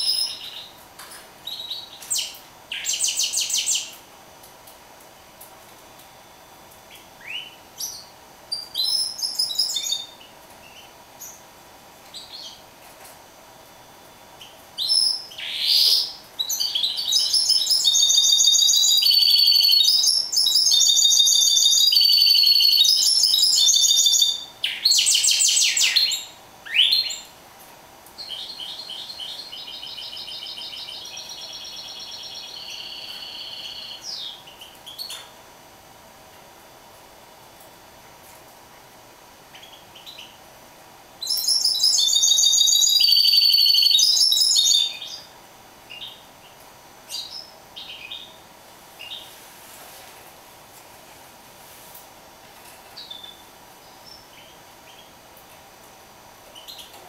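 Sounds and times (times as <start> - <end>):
bird singing and trilling: 0.0 - 0.8, 1.4 - 4.0, 6.9 - 11.4, 14.4 - 27.3, 28.2 - 35.2, 41.2 - 45.3, 45.9 - 48.4.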